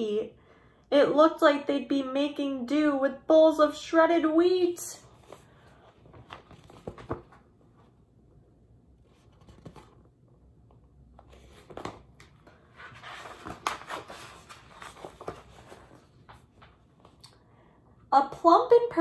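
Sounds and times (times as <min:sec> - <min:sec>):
paper page rustling: 0:05.0 - 0:08.0, 0:09.0 - 0:10.1, 0:11.2 - 0:17.2.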